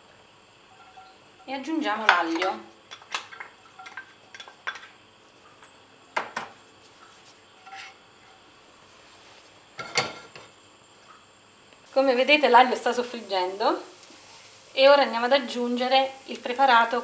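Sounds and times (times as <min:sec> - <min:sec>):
utensils clinking on frying pan: 0:02.1 - 0:04.9.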